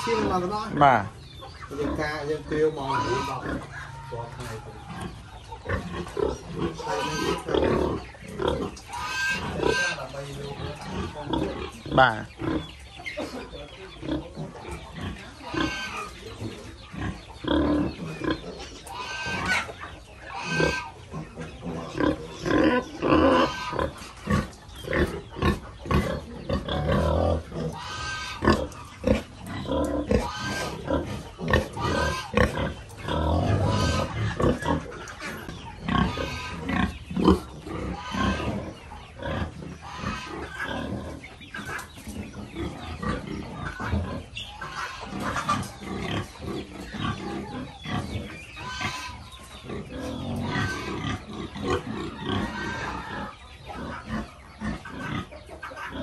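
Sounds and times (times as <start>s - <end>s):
piglets squealing: 0.0s - 13.0s, 13.9s - 56.0s
pigs grunting: 0.0s - 56.0s.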